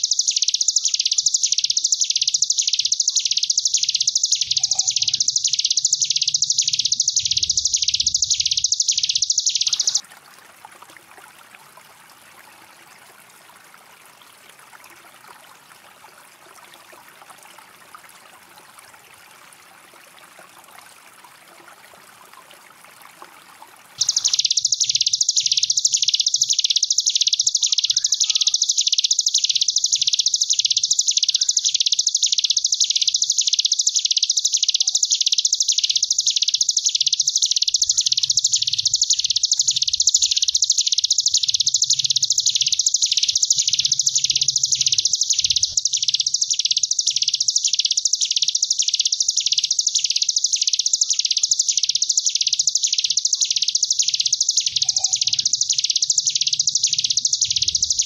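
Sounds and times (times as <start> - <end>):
bird buzzing trill: 0.0 - 10.0.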